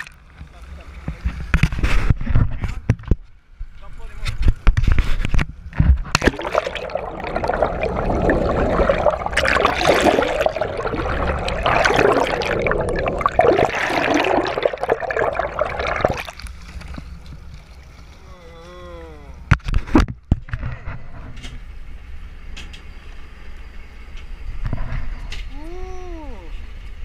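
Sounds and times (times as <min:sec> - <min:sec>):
sharp water splashes: 0:06.1 - 0:16.9
water rushing and gurgling: 0:06.1 - 0:17.9.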